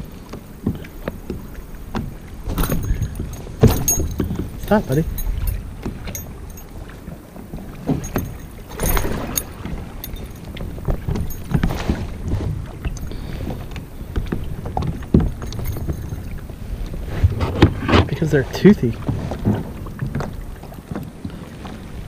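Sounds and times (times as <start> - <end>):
fishing lure and gear clicking: 1.9 - 7.0, 7.8 - 11.7, 12.8 - 16.6
landing net rustling: 2.4 - 6.6, 7.8 - 12.9.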